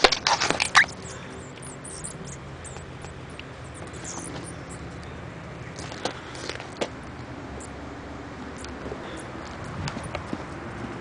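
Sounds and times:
mouse squeaking: 0.5s - 5.0s.

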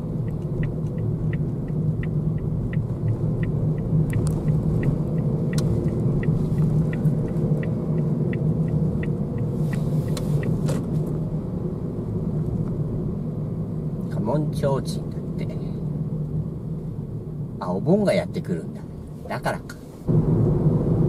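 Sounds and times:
turn signal ticking: 0.0s - 11.2s
car engine and road rumble: 0.0s - 21.0s.

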